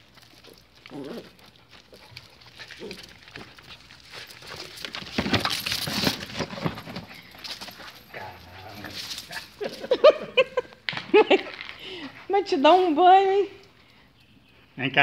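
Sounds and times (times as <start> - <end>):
dog scuffling and scrabbling: 0.0 - 10.1.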